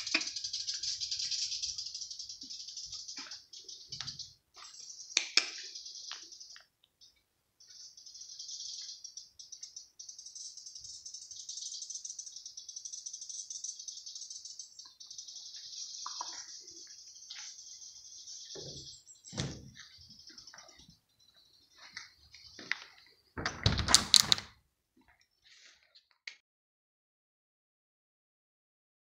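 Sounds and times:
insects pulsing rattle: 0.0 - 6.6, 7.6 - 22.7
sharp clicks: 5.2 - 6.2, 23.5 - 24.5.

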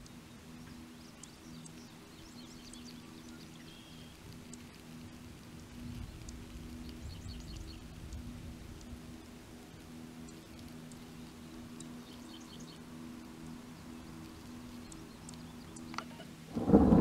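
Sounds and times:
faint bird chirps: 0.0 - 4.6
steady low hum: 0.0 - 17.0
wind rumble: 4.1 - 12.0, 16.4 - 17.0.

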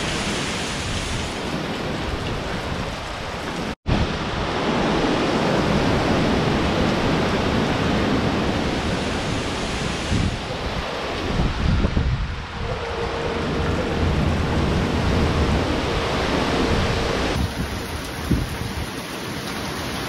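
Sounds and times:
wind buffeting microphone: 0.0 - 19.4
storm wind and rain: 0.0 - 20.0.

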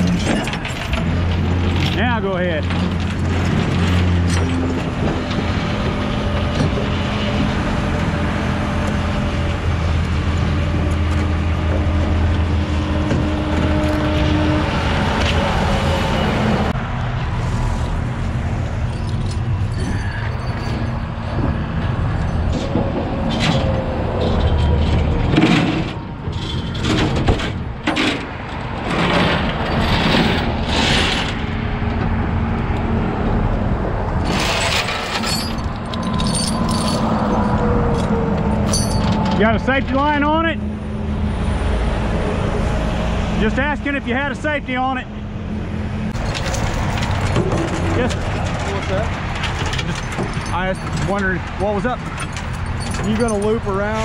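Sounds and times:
metal clanks: 0.0 - 5.7, 34.2 - 39.4, 46.1 - 54.0
chain rattling: 18.7 - 27.1, 34.2 - 39.4, 46.2 - 54.0.

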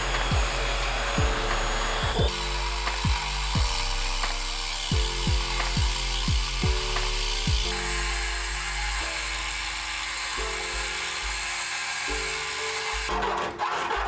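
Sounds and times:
deep kick drums: 0.0 - 4.2, 4.8 - 7.8
sustained bass notes: 0.0 - 10.2.

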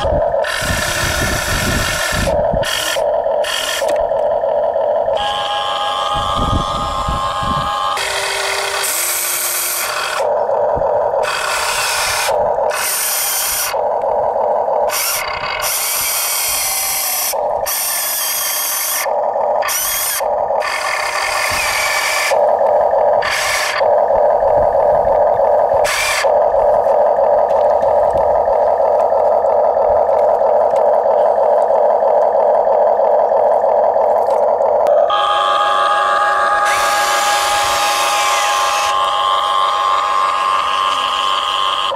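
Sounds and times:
toy excavator motors whirring: 0.0 - 41.9.

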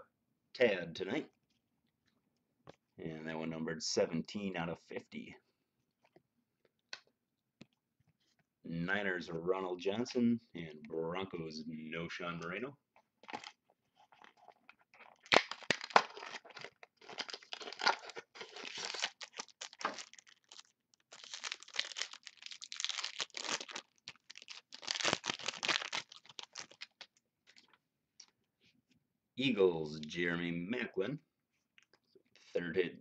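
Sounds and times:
card pack wrapper tearing and crinkling: 13.2 - 27.2.

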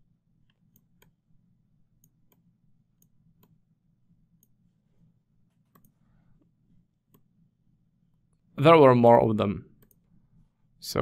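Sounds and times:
low room hum: 0.0 - 11.0
computer mouse clicks: 0.4 - 1.2, 5.5 - 6.0, 7.1 - 7.3, 9.8 - 10.0.

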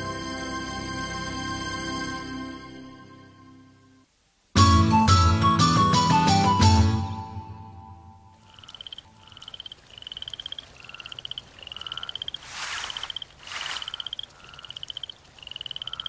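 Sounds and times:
frog trilling calls: 8.4 - 16.0
short rushes of noise: 11.7 - 14.8.

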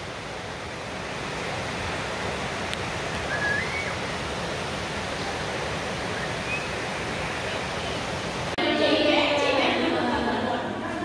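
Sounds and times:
rain falling: 0.0 - 8.6
short rising whistle: 3.2 - 4.0.

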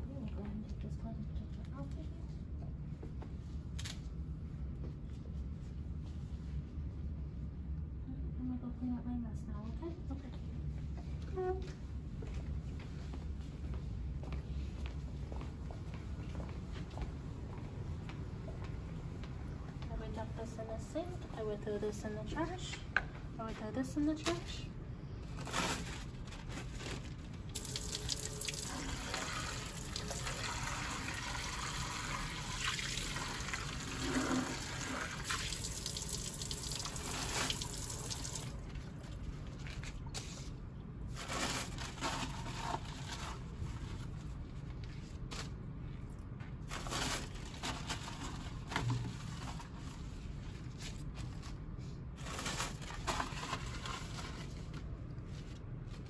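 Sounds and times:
faucet water running into sink: 27.6 - 38.6.

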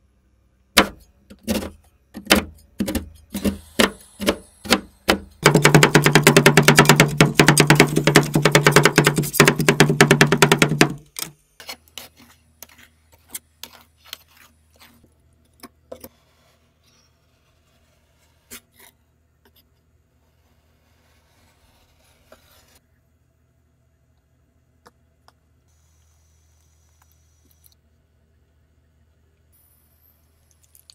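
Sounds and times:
metal spatulas chopping on steel plate: 0.8 - 11.8
spatula tapping and scraping: 0.8 - 16.2.

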